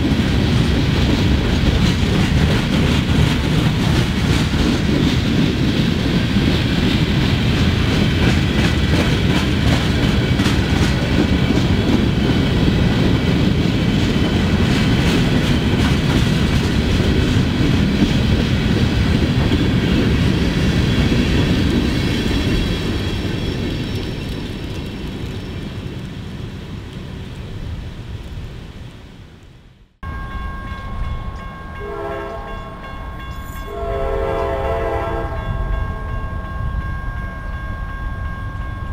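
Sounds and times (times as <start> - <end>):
train cars rumbling past: 0.0 - 38.9
train horn blasts: 31.8 - 35.8.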